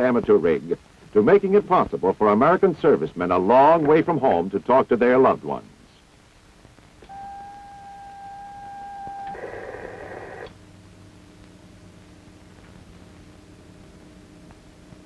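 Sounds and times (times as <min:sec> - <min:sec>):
faint low hum: 0:00.0 - 0:15.0
radio hiss and static: 0:00.0 - 0:15.0
radio carrier tone whistle: 0:07.0 - 0:10.6.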